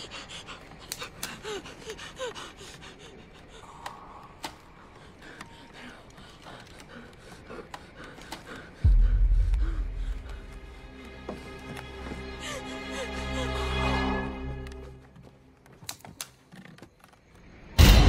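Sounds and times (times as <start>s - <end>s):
boy gasping and whimpering: 0.0s - 3.9s, 12.1s - 14.2s
faint clicks and creaks: 2.6s - 8.8s, 14.6s - 17.6s.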